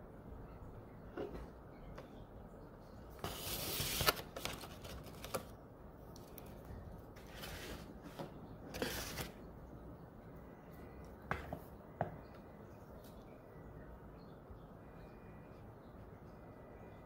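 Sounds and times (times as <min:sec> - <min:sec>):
plastic tray rustling: 0:03.2 - 0:05.6.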